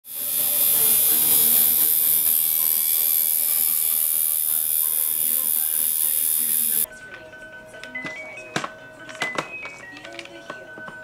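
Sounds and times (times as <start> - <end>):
tattoo machine buzzing: 0.0 - 6.9.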